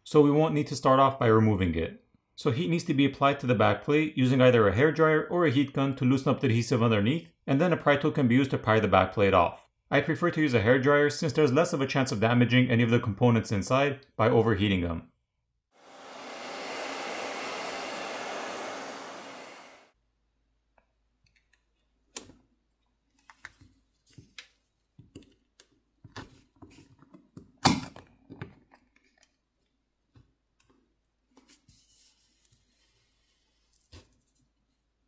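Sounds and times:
hair dryer blowing: 15.8 - 19.9.

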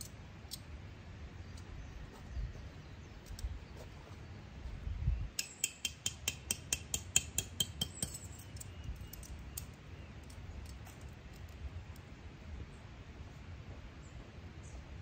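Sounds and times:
metal stake hammered into ground: 5.4 - 8.5.

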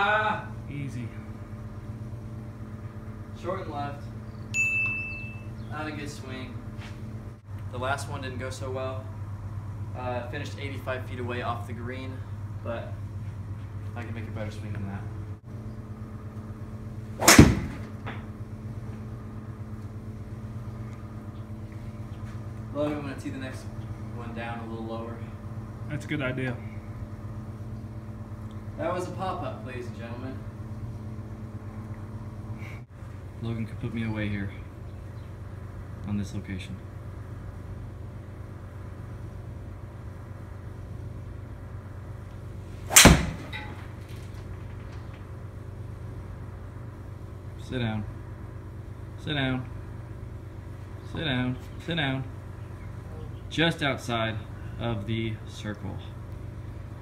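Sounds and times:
steady low hum: 0.0 - 57.0
golf club swish: 17.2 - 17.9, 42.8 - 43.5
ball hitting screen: 17.2 - 18.3, 42.9 - 44.0
club striking golf ball: 17.2 - 18.3, 42.9 - 43.9.

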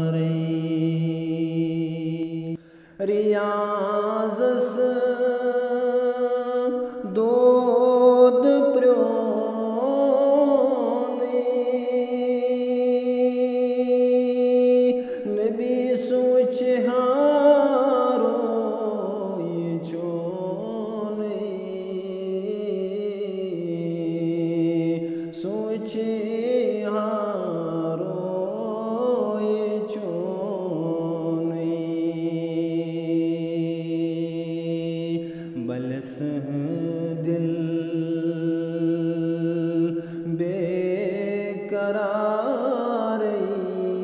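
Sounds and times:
man singing devotional song: 0.0 - 44.0
singer breathing: 2.6 - 3.0, 6.8 - 7.1, 15.0 - 15.3, 25.0 - 25.4, 35.2 - 35.6, 39.9 - 40.3.

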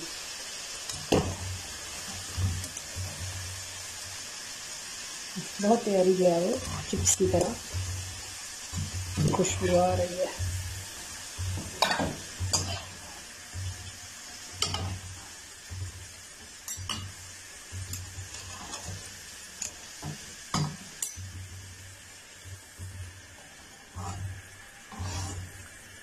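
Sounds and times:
potatoes sizzling in oil: 0.0 - 26.0
metal utensils clinking and scraping: 11.6 - 15.0, 17.8 - 19.9, 24.9 - 25.5.

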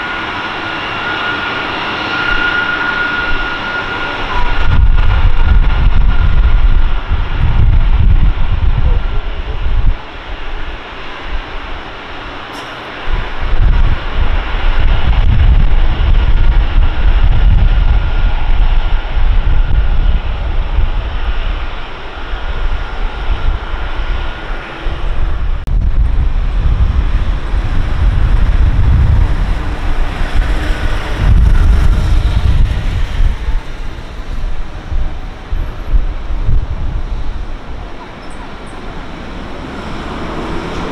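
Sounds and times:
jet engines whine and rumble: 0.0 - 40.9
wind buffeting microphone: 0.0 - 40.9.

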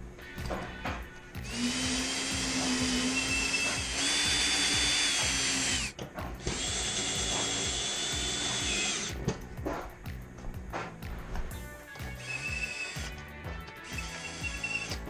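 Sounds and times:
cordless drill whining: 1.4 - 9.2, 12.0 - 15.0.

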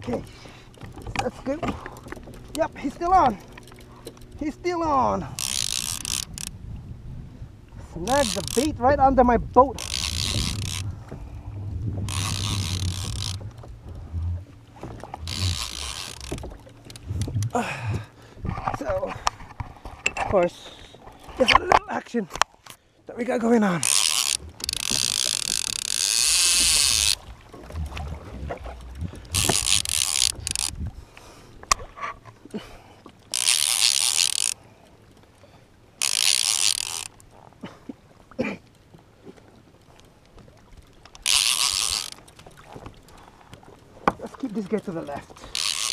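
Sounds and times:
fishing reel line zipping: 5.2 - 6.5, 8.0 - 8.8, 9.7 - 11.0, 12.0 - 14.4, 15.0 - 17.5, 23.8 - 30.8, 33.3 - 34.6, 36.0 - 37.2, 41.2 - 42.4, 45.4 - 45.9
steady low rumble: 6.3 - 8.1, 8.7 - 15.6, 16.4 - 18.4, 26.6 - 29.6.

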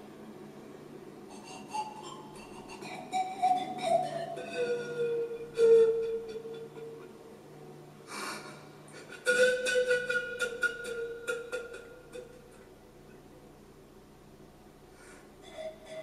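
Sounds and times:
pan flute long notes: 1.3 - 7.3, 8.9 - 12.6, 15.4 - 16.0
breath of air: 8.0 - 9.2, 14.9 - 15.6.

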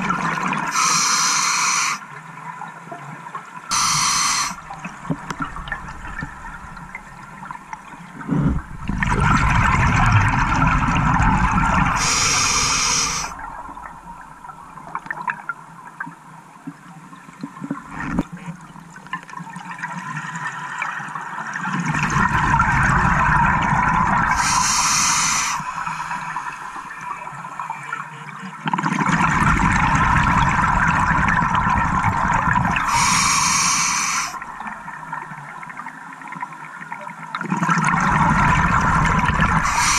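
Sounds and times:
water noise: 0.0 - 39.9
regulator high hiss: 0.7 - 2.0, 3.7 - 4.6, 12.0 - 13.4, 24.3 - 26.9, 32.8 - 34.4, 39.6 - 39.9
exhaled bubbles underwater: 3.7 - 15.6, 20.7 - 28.0, 28.6 - 39.9.

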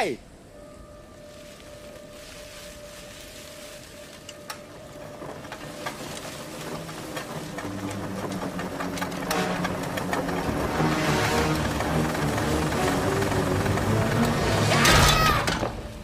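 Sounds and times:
thin steady whistle tone: 0.4 - 4.7
rapid wind-up clicking: 5.8 - 14.8
low motor-like rev: 6.2 - 14.9.

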